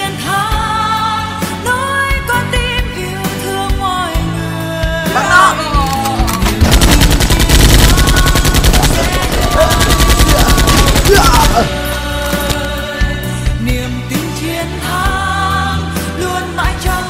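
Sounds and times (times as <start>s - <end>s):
background music: 0.0s - 17.0s
machine-gun fire: 6.4s - 11.8s.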